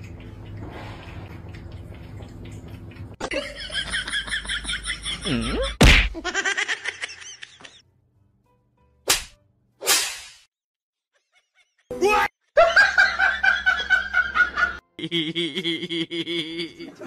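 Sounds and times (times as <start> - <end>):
low steady hum: 0.0 - 5.8
person laughing: 3.2 - 7.8, 11.2 - 17.0
sharp smack: 5.8 - 6.2, 9.1 - 10.5.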